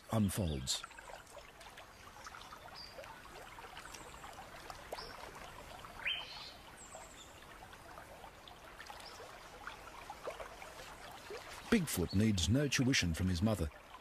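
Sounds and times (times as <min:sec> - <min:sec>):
small water splashes: 0:00.0 - 0:14.0
water trickling and lapping: 0:00.0 - 0:14.0
bird chirps: 0:06.0 - 0:07.4.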